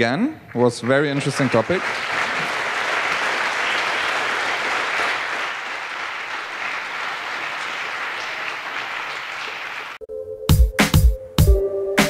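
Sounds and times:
audience applauding: 0.5s - 10.0s.

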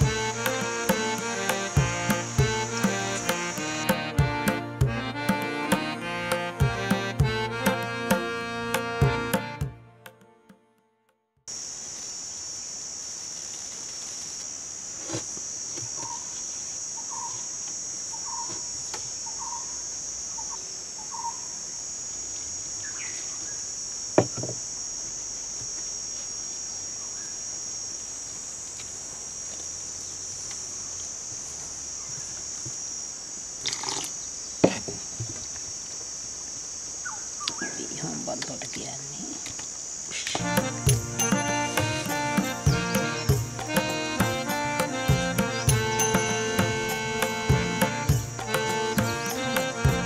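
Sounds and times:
high-pitched insect chorus: 0.0s - 4.5s, 11.5s - 50.0s
soft calls: 0.0s - 10.5s, 40.3s - 50.0s.

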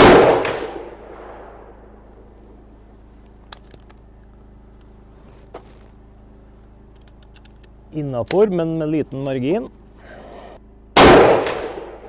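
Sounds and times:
pistol shot: 0.0s - 1.6s, 11.0s - 12.0s
generator humming: 0.0s - 12.0s.

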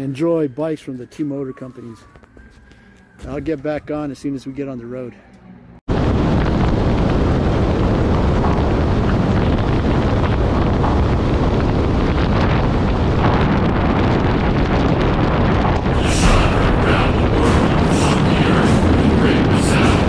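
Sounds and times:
wind buffeting microphone: 5.9s - 20.0s.

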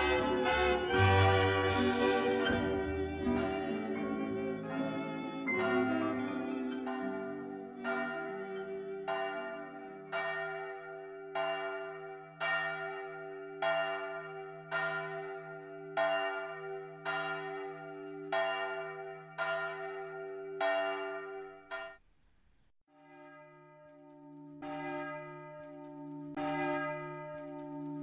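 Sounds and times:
church bell tolling: 0.0s - 22.0s, 23.0s - 28.0s.

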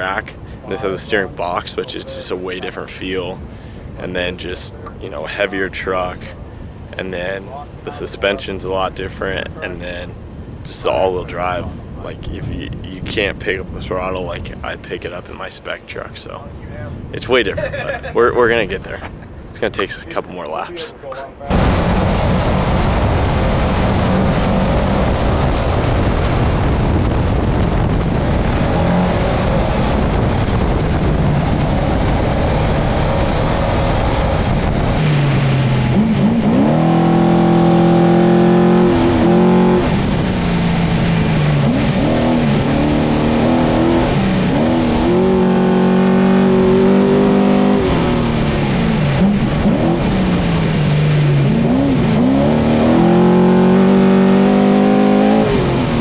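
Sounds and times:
road and wind noise: 0.0s - 56.0s
truck engine revving: 21.5s - 56.0s.

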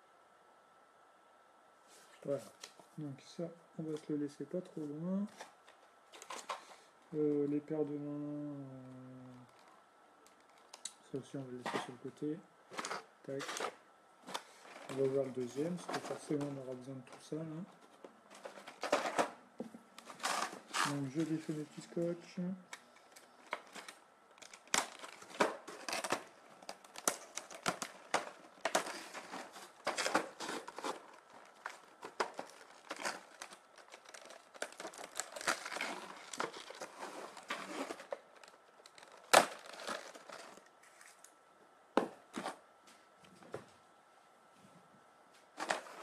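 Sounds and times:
plastic blister tray crinkling: 12.7s - 41.3s.

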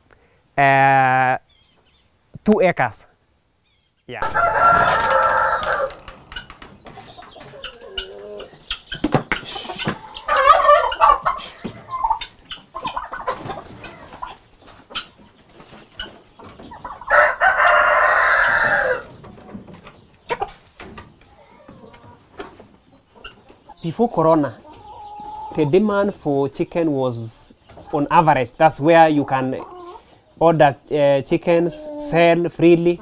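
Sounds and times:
chickens clucking: 3.7s - 33.0s
rooster crowing: 4.2s - 6.2s, 17.0s - 19.1s
small knocks and clicks: 5.8s - 7.8s.

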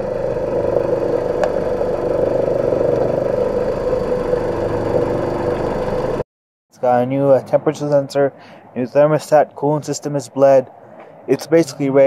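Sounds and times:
car engine idling: 0.0s - 6.2s.

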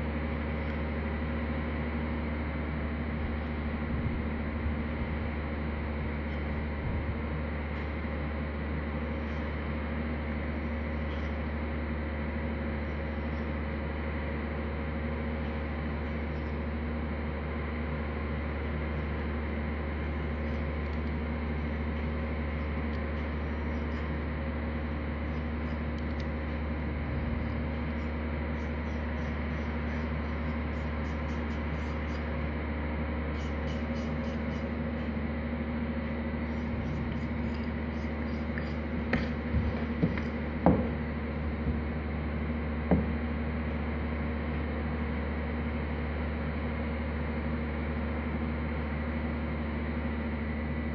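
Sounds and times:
steady low hum: 0.0s - 50.9s
sharp knocks: 38.6s - 41.8s.

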